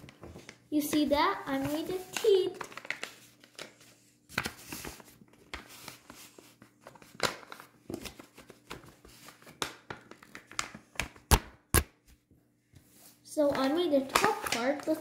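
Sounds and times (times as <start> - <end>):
paper rustling and crinkling: 0.0 - 10.8.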